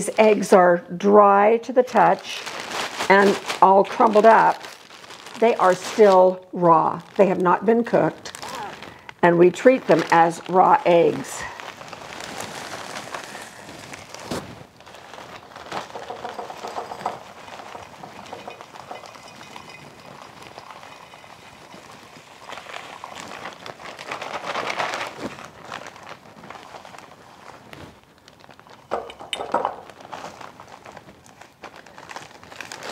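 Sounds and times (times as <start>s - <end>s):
plastic bag crinkling: 1.9s - 32.9s
dry granules pouring into glass jar: 15.9s - 23.2s.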